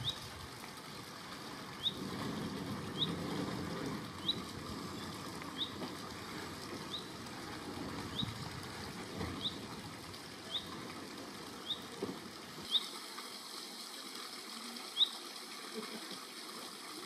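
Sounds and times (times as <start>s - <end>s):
faint locomotive rumble: 0.0s - 12.8s.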